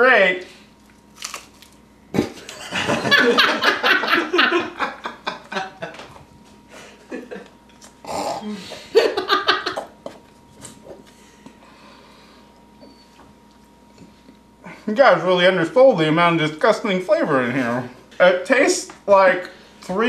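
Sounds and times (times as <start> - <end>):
person chewing crunchy chip: 0.7 - 2.5
people laughing: 2.3 - 6.2, 6.8 - 7.5, 8.7 - 10.0.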